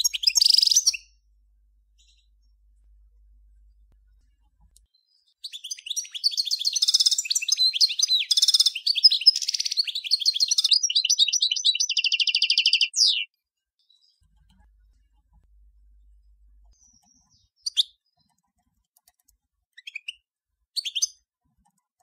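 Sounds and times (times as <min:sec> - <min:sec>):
goldfinch singing: 0:00.0 - 0:01.1, 0:05.4 - 0:13.3.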